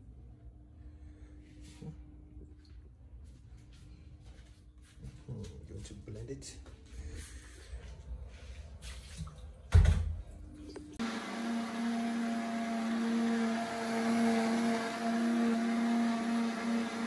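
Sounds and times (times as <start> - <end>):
blender motor humming: 11.0 - 17.0.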